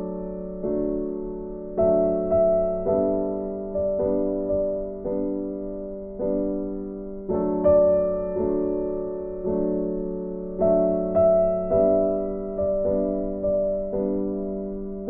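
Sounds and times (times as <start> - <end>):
gentle piano chords: 0.0 - 15.0.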